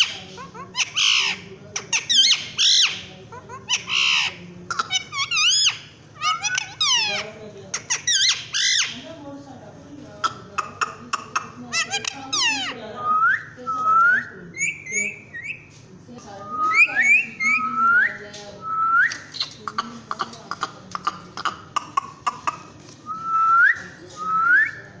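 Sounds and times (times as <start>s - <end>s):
parakeet whistling: 11.7s - 15.7s, 16.4s - 19.6s.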